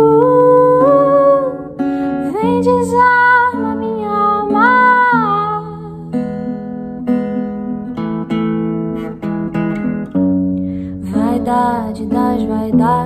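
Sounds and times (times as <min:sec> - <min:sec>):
woman singing: 0:00.0 - 0:06.4, 0:10.9 - 0:13.0
acoustic guitar strumming chords: 0:00.0 - 0:13.0.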